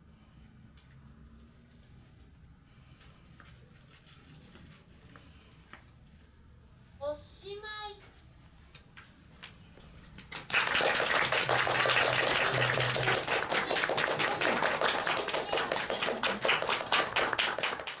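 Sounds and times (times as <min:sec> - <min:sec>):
audience applause: 0:10.2 - 0:18.0.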